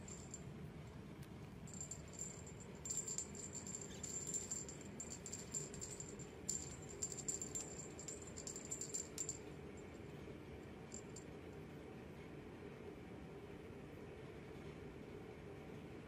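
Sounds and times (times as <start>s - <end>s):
small bell jingling: 0.0s - 0.5s, 1.7s - 9.6s, 10.9s - 11.2s.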